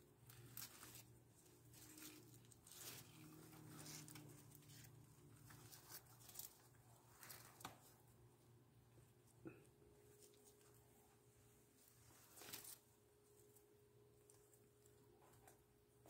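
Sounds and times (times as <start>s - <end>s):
low room hum: 0.0s - 16.0s
cat rustling leaves: 0.2s - 7.6s.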